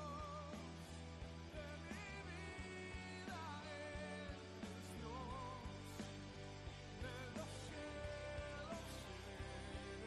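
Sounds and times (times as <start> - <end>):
song with steady beat: 0.0 - 10.0
person singing: 1.5 - 6.1, 7.0 - 10.0.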